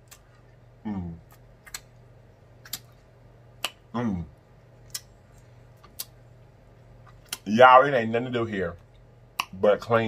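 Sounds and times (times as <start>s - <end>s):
person humming mmm: 0.8s - 1.3s
wet mouth clicks and lip smacks: 1.3s - 2.0s, 2.6s - 3.0s, 4.9s - 5.1s.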